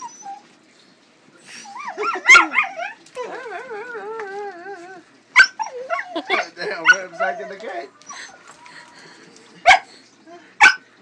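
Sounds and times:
dog whining and yelping: 0.0 - 0.6, 1.5 - 9.0.

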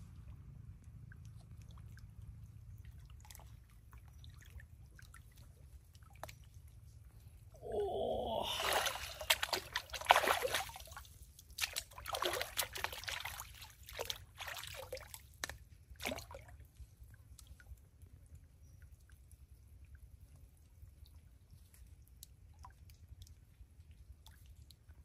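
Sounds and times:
water sloshing and splashing: 0.9 - 17.6.

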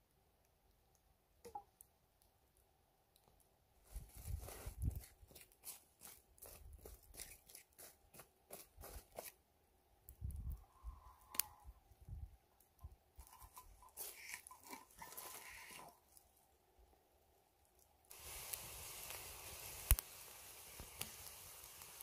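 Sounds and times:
charcoal embers crunching: 3.2 - 9.4, 12.6 - 16.4, 17.7 - 22.0
frying pan scraping on coals: 13.2 - 16.1.

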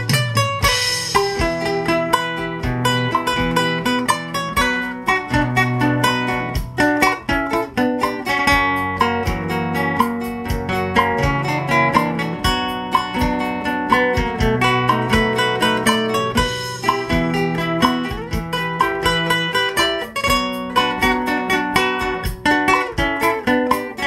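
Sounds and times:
acoustic guitars playing: 0.0 - 24.0.

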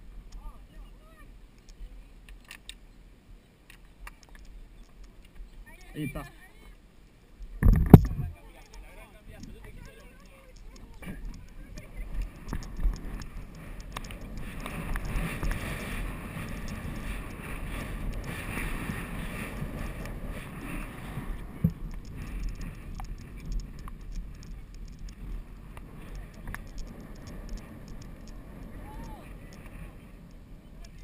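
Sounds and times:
wind buffeting microphone: 7.5 - 8.5, 9.2 - 31.0.

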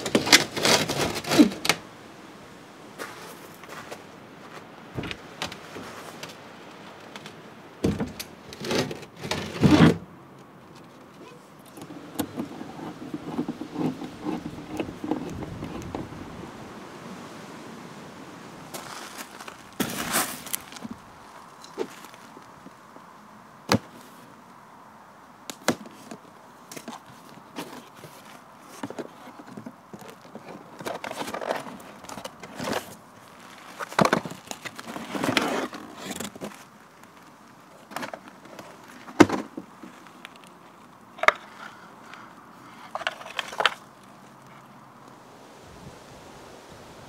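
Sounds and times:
cardboard scraping and rustling: 0.0 - 1.8, 7.8 - 10.0, 10.7 - 16.3, 18.7 - 21.0, 26.8 - 40.3, 42.8 - 43.9.

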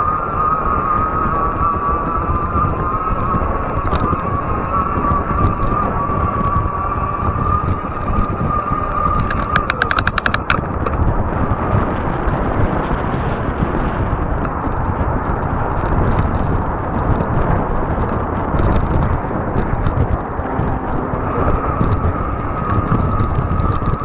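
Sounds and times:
wind rushing over microphone: 0.0 - 24.0
tyres running on asphalt: 5.2 - 24.0
steady high whine: 6.8 - 11.2
small clicks: 9.2 - 11.0.

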